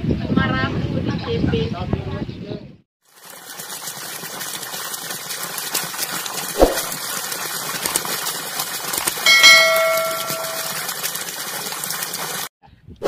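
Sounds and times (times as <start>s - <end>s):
rushing water: 3.0s - 12.5s
ringing bell chime: 9.3s - 10.8s.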